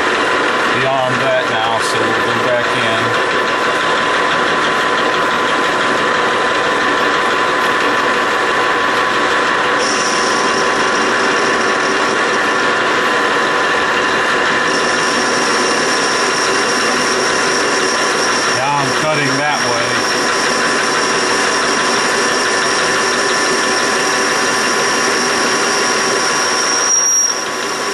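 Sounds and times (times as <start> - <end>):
metal lathe running: 0.0 - 27.9
thin high tone: 9.8 - 12.4, 14.6 - 23.2.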